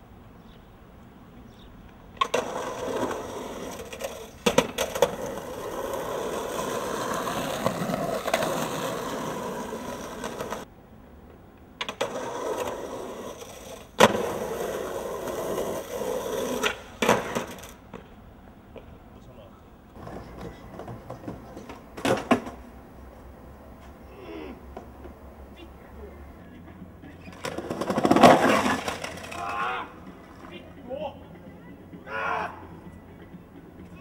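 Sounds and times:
skateboard wheels rolling on asphalt: 0.0s - 32.0s
skateboard clacking on ground: 1.8s - 19.0s, 19.9s - 22.8s, 24.7s - 31.6s.

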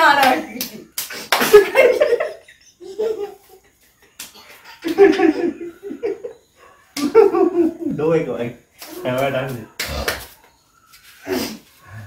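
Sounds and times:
people laughing: 1.2s - 6.4s, 7.0s - 8.0s.

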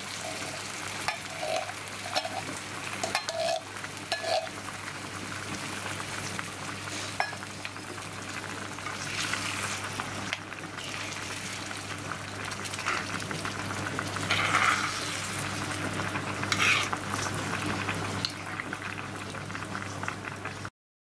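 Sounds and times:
food sizzling in a frying pan: 0.0s - 20.7s.

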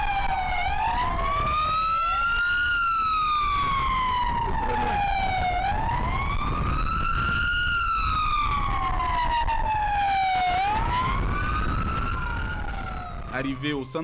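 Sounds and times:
second siren: 0.0s - 14.0s
siren wailing: 0.0s - 14.0s.

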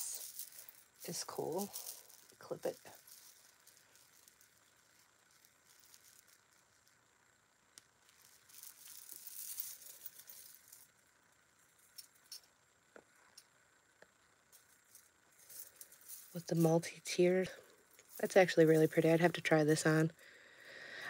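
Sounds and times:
metal chains clinking and rustling: 0.0s - 6.9s, 8.0s - 11.0s, 14.6s - 20.1s.

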